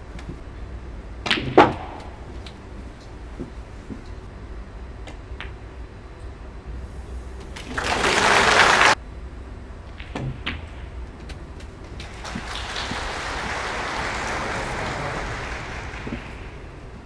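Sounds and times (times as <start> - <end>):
audience applause: 7.6 - 9.0, 12.0 - 16.8.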